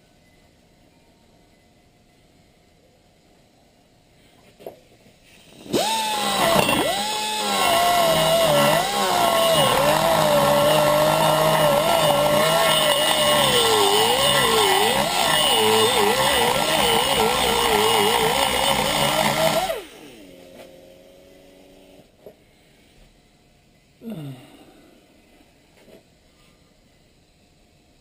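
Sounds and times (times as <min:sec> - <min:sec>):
pneumatic die grinder on metal: 0:05.4 - 0:20.8.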